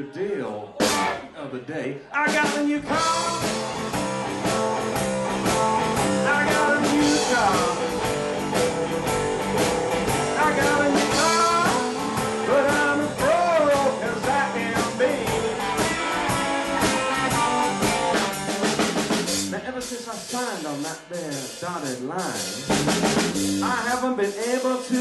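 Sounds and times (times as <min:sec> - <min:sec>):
drum kit beat: 0:00.8 - 0:01.3, 0:02.2 - 0:25.0
person singing: 0:02.2 - 0:03.6, 0:06.1 - 0:08.0, 0:10.2 - 0:17.6, 0:23.6 - 0:25.0
electric guitar fills: 0:02.9 - 0:19.0.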